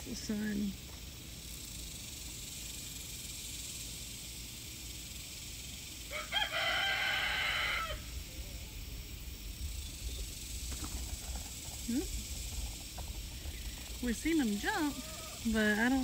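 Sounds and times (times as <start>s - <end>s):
rooster crowing: 6.0s - 8.6s, 14.4s - 15.6s.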